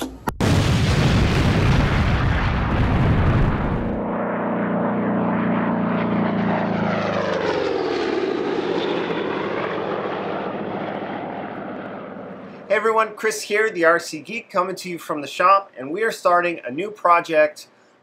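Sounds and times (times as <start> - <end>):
propeller aircraft engine droning: 0.0 - 18.0
deep rumble: 0.3 - 4.2.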